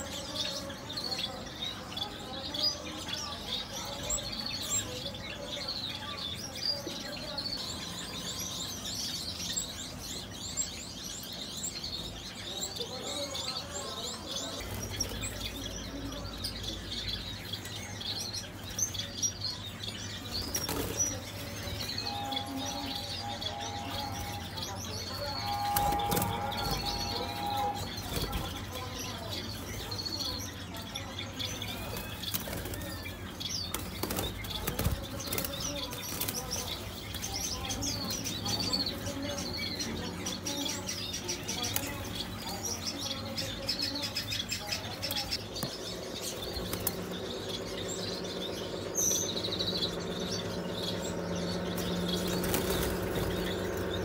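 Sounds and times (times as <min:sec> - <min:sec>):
small birds chirping: 0:00.0 - 0:54.0
wings fluttering: 0:25.3 - 0:30.2, 0:50.2 - 0:54.0.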